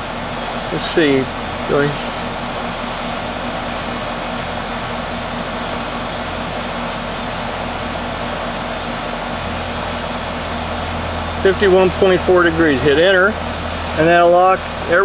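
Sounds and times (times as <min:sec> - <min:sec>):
air conditioner unit humming: 0:00.0 - 0:15.0
short high keypad beeps: 0:03.8 - 0:06.3, 0:10.4 - 0:11.1.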